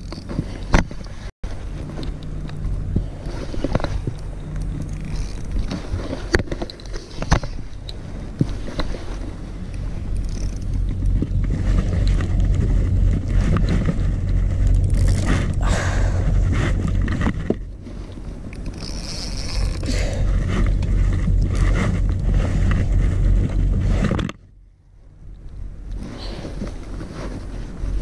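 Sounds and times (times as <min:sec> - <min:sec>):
fishing rod scrapes and knocks: 0:00.0 - 0:24.4
steady low rumble: 0:00.0 - 0:28.0.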